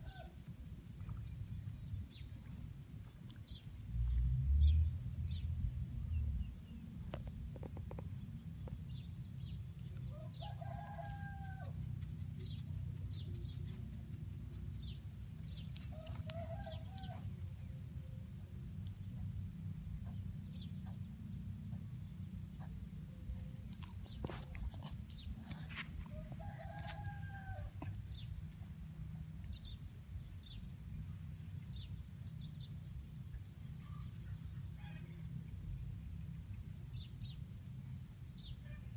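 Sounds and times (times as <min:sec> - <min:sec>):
steady low rumble: 0:00.0 - 0:38.5
rooster crowing: 0:10.1 - 0:11.8, 0:15.9 - 0:17.3, 0:26.1 - 0:27.8
small birds chirping: 0:11.7 - 0:17.0.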